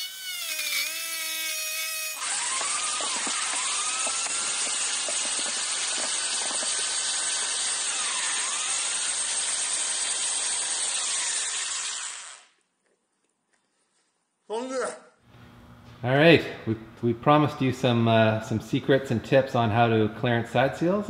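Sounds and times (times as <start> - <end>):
electric drill motor whine: 0.0 - 12.5.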